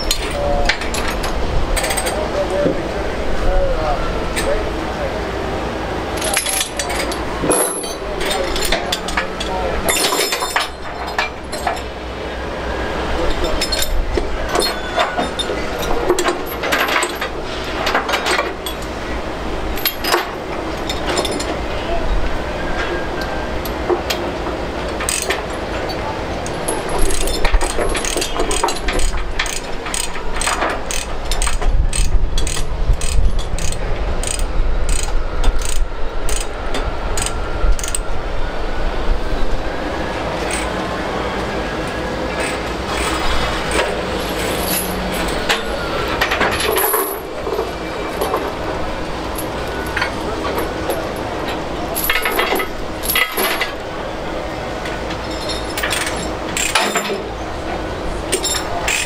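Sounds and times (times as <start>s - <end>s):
metal chains clinking: 0.0s - 2.2s, 6.1s - 11.9s, 13.2s - 17.3s, 19.8s - 21.6s, 26.4s - 36.4s, 42.4s - 48.6s, 51.9s - 53.8s, 55.1s - 57.3s, 58.3s - 59.0s.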